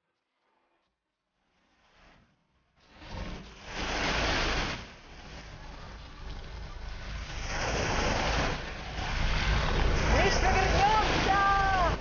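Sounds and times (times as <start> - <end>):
small waves breaking on shingle: 3.2 - 12.0
steady low rumble: 3.5 - 12.0.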